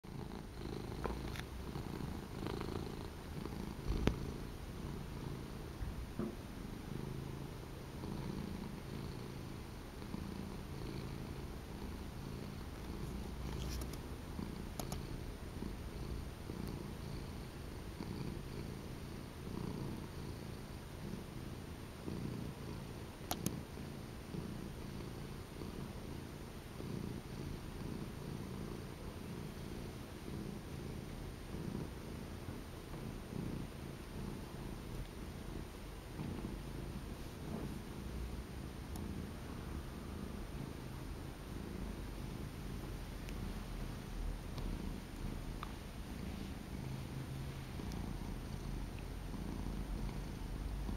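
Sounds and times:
cat purring: 0:00.0 - 0:50.9
sharp clicks: 0:14.8 - 0:15.0.

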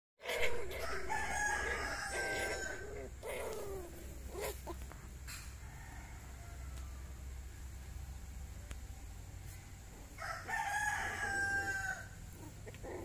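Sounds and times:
rooster crowing: 0:00.4 - 0:03.8, 0:05.3 - 0:07.5, 0:10.2 - 0:12.2.

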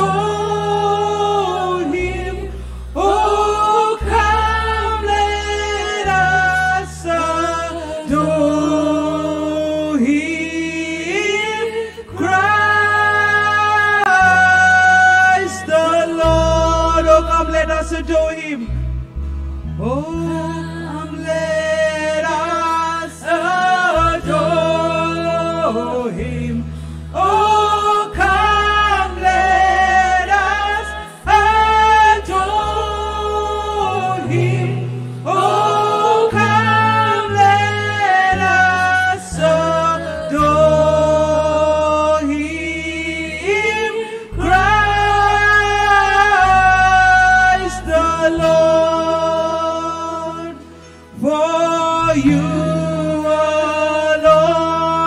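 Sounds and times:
backing singers: 0:00.0 - 0:18.0, 0:19.8 - 0:55.0
band with sustained bass: 0:00.0 - 0:55.0
woman singing into a microphone: 0:20.0 - 0:26.3.

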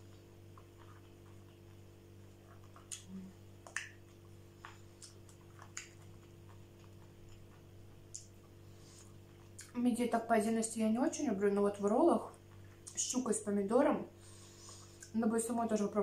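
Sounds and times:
steady low hum: 0:00.0 - 0:16.0
mouth smacks: 0:00.5 - 0:08.5.

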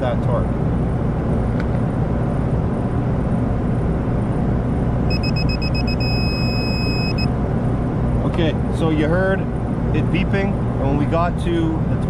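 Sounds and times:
torque wrench alarm beeping: 0:05.1 - 0:07.3.

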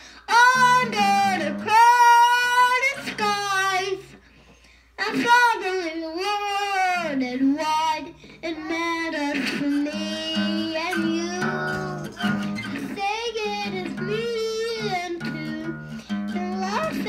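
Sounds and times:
acoustic guitar: 0:00.0 - 0:17.0
boy singing long sliding notes: 0:08.0 - 0:17.0.

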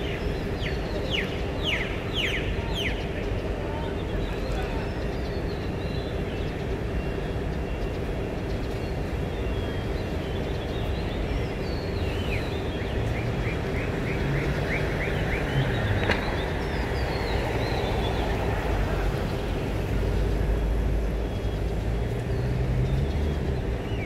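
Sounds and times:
birds chirping: 0:00.0 - 0:24.0
low rumble of vehicles: 0:00.0 - 0:24.0.

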